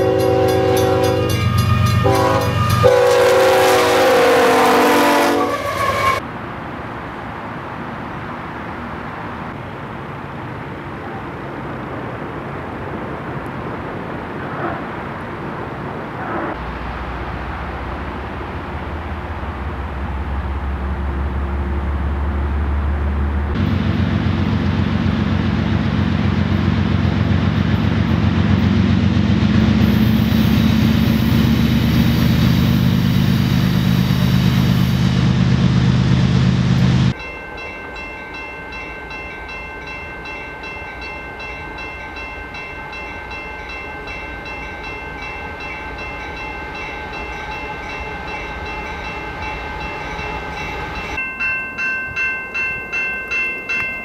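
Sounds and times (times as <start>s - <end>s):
diesel locomotive engines running: 0.0s - 6.2s, 16.2s - 37.2s, 44.0s - 51.2s
high-pitched train horn tones: 0.0s - 6.2s, 44.1s - 51.2s
freight train rumble: 0.0s - 54.0s.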